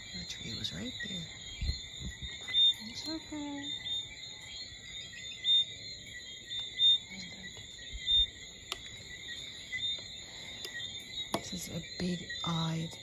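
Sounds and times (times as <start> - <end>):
crickets chirping: 0.0 - 13.0
low thumps near microphone: 1.5 - 2.4.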